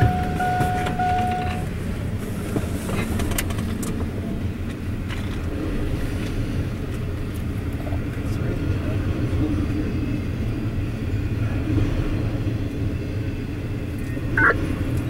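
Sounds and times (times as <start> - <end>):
high steady tone: 0.0 - 1.7
sharp train clanks: 0.0 - 7.5
train cars rumbling past: 0.0 - 15.0.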